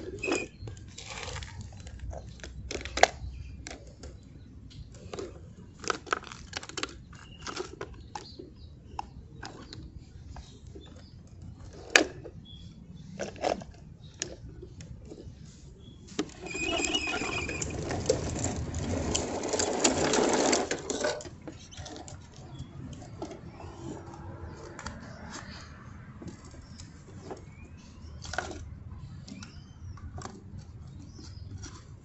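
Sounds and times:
toy truck rattling and whirring: 0:00.0 - 0:03.1, 0:16.2 - 0:25.4
plastic toy trucks clicking: 0:00.0 - 0:12.4, 0:13.1 - 0:15.2, 0:16.2 - 0:25.6, 0:26.2 - 0:32.0.

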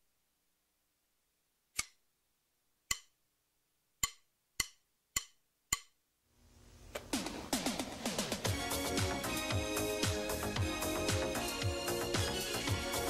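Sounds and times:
sharp percussive clicks: 0:02.9 - 0:03.1, 0:04.0 - 0:06.0.

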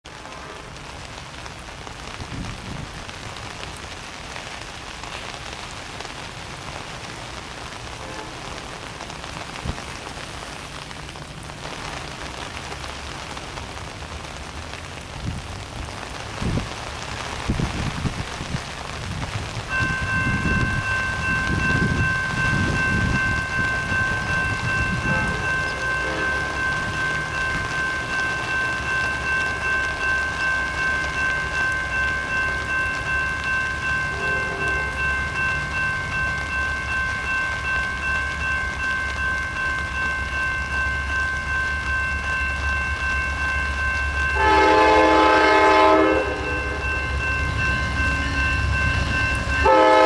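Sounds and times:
heavy rain hissing: 0:00.1 - 0:50.0
locomotive rumble: 0:06.8 - 0:50.0
locomotive horn chord: 0:08.0 - 0:08.6, 0:23.4 - 0:33.0, 0:34.0 - 0:35.3, 0:44.3 - 0:50.0.

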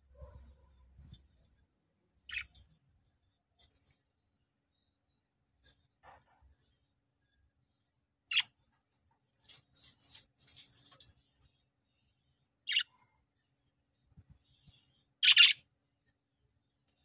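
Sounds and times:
budgerigars chirping: 0:02.3 - 0:02.5, 0:12.7 - 0:12.9, 0:15.2 - 0:15.6.

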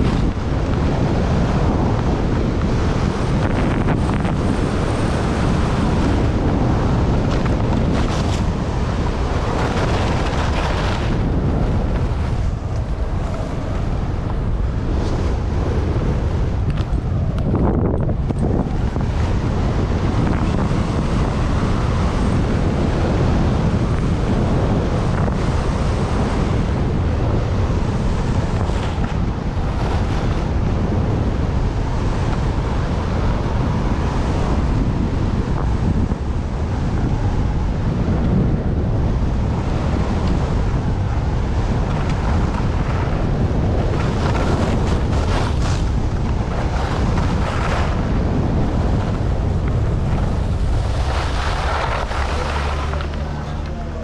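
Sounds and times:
skis scraping on snow: 0:00.0 - 0:17.0, 0:41.5 - 0:53.8
wind buffeting microphone: 0:00.0 - 0:54.0.

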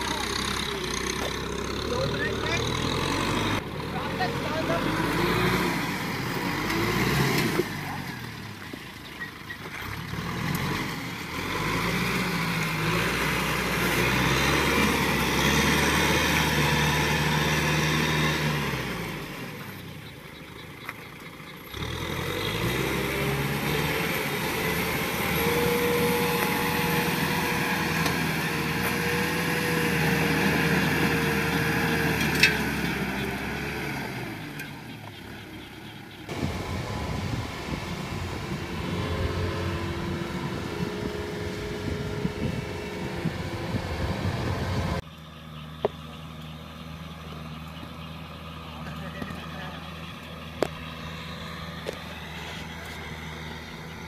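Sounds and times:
tractor diesel engine revving: 0:00.0 - 0:54.0.

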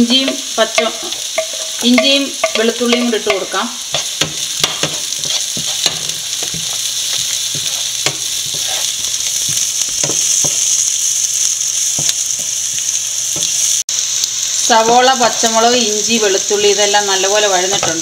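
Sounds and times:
vegetables sizzling in hot oil: 0:00.0 - 0:18.0
wooden spatula scraping pan: 0:04.0 - 0:10.6.

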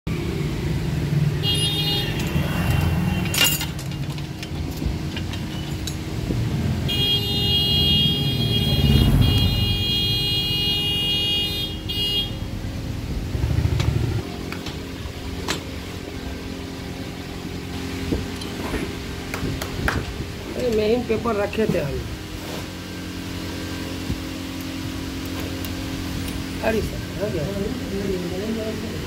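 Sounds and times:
traffic rumble: 0:00.1 - 0:29.0.

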